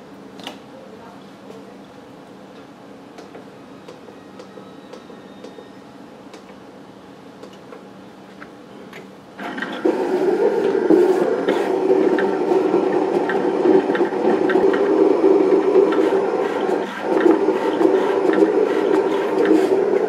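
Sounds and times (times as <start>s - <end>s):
cutting plotter motor whirring: 9.4s - 20.0s.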